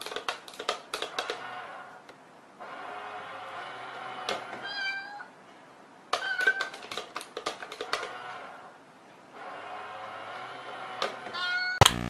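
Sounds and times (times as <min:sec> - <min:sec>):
rapid clicks and taps: 0:00.0 - 0:01.4, 0:06.1 - 0:08.1.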